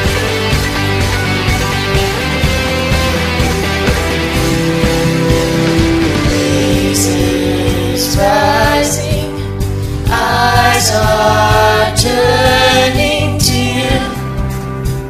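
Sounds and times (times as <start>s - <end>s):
bass: 0.0s - 15.0s
drum beat: 0.1s - 9.4s, 10.1s - 12.6s
people singing: 5.6s - 14.3s.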